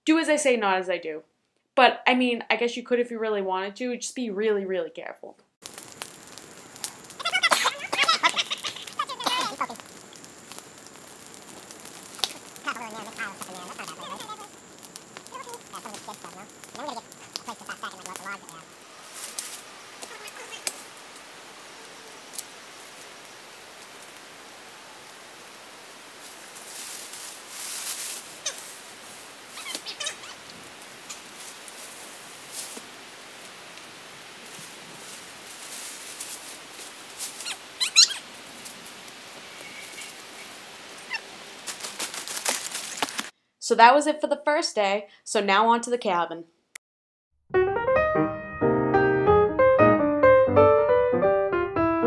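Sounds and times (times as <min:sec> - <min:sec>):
brush rustling: 0:05.7 - 0:24.3, 0:25.8 - 0:43.3
short high animal calls: 0:07.1 - 0:09.8, 0:12.6 - 0:14.6, 0:15.2 - 0:18.8, 0:20.0 - 0:20.8, 0:28.2 - 0:31.3, 0:37.3 - 0:38.4, 0:39.6 - 0:41.4
baby chipmunks squeaking: 0:07.2 - 0:09.8, 0:12.6 - 0:14.6, 0:15.2 - 0:18.6, 0:20.0 - 0:20.8, 0:28.4 - 0:28.8, 0:29.5 - 0:31.3, 0:37.3 - 0:38.3.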